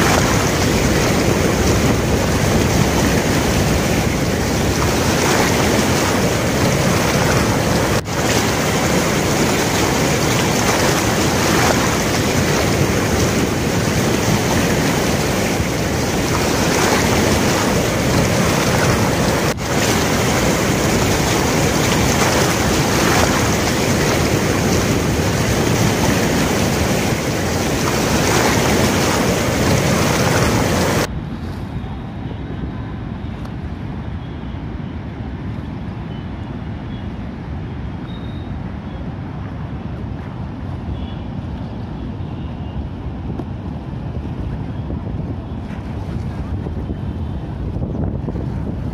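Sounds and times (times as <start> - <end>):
fast-flowing river rushing: 0.0 - 31.1
wind buffeting microphone: 0.0 - 31.4, 42.8 - 48.9.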